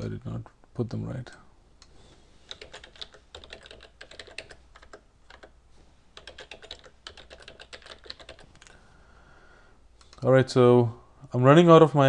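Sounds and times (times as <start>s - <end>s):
typing on a computer keyboard: 2.5s - 5.6s, 6.2s - 8.7s.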